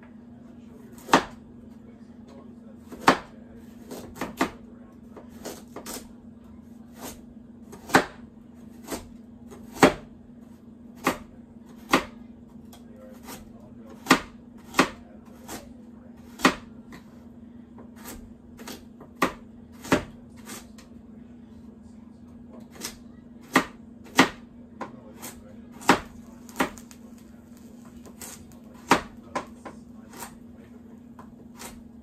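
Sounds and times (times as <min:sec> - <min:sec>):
knife slicing carrot on board: 0:00.9 - 0:01.4, 0:02.8 - 0:06.2, 0:06.9 - 0:10.1, 0:11.0 - 0:20.9, 0:22.5 - 0:32.0.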